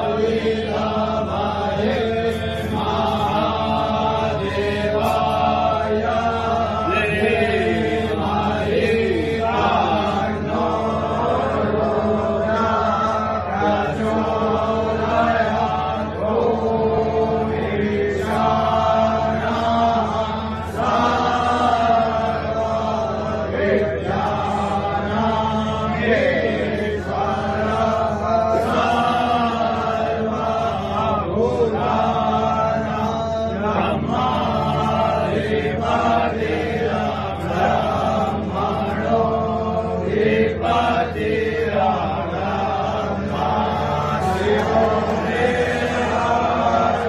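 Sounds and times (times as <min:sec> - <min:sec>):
voices chanting a mantra: 0:00.0 - 0:47.0.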